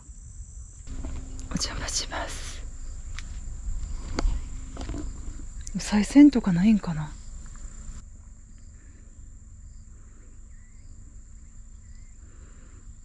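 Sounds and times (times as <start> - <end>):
high insect trill: 0.0 - 13.0
wind rumble on microphone: 0.9 - 8.0.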